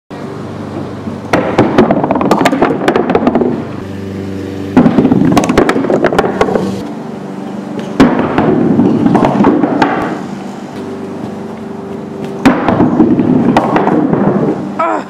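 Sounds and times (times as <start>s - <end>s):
bowling balls rolling on wood: 0.7s - 3.9s, 4.6s - 14.8s
bowling pins clattering: 7.8s - 14.6s.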